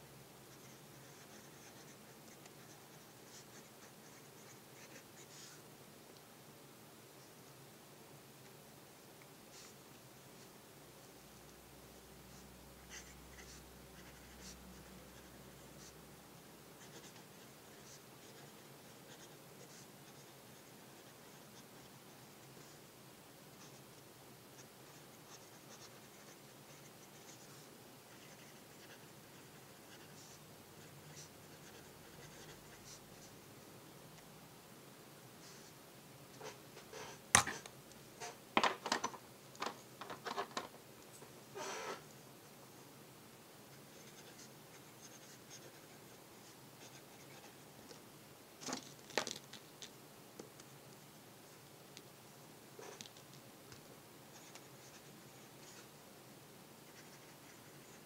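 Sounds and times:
low hiss: 0:00.0 - 0:58.0
pen nib scratching paper: 0:00.6 - 0:05.6, 0:12.9 - 0:16.0, 0:16.8 - 0:22.0, 0:24.6 - 0:33.3, 0:43.7 - 0:47.6, 0:56.8 - 0:58.0.

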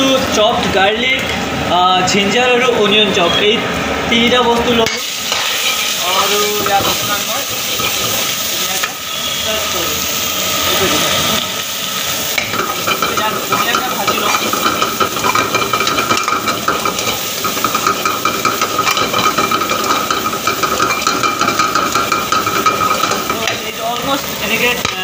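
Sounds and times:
food sizzling in hot oil: 0:04.6 - 0:25.0
metal ladle scraping a wok: 0:05.0 - 0:09.4, 0:12.2 - 0:23.8.

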